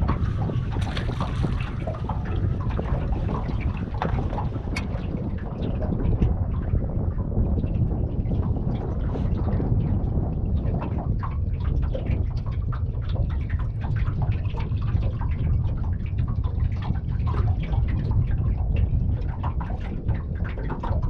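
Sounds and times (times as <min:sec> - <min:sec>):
water lapping against boat hull: 0:00.0 - 0:21.0
wind buffeting microphone: 0:00.0 - 0:21.0.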